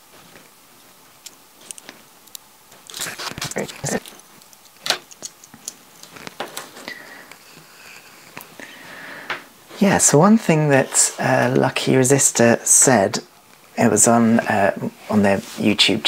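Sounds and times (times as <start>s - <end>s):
tiny screws clicking and rattling: 1.2s - 6.7s.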